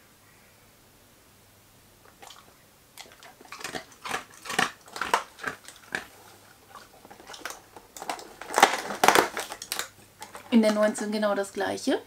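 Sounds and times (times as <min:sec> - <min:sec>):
dog crunching biscuit: 0:02.0 - 0:10.9.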